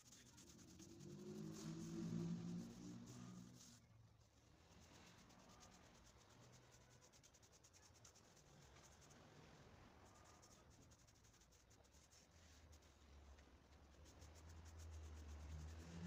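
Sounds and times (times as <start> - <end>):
paintbrush bristles rubbing: 0.0 - 3.8, 10.0 - 13.0.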